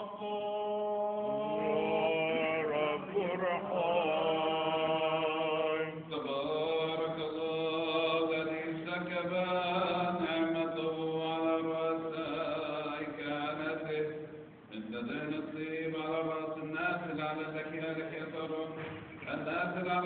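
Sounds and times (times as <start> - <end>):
person chanting held notes: 0.0 - 7.9.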